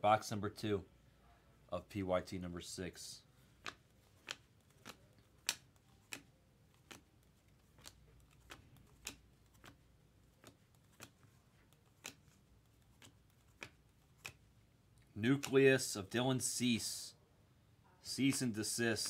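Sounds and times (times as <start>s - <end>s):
cards flipping clicks: 3.5s - 14.5s, 15.2s - 15.8s.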